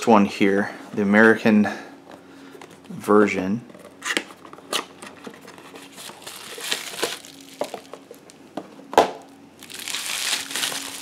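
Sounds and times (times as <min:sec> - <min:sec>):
bubble wrap crinkling: 0:05.6 - 0:08.4, 0:09.6 - 0:11.0.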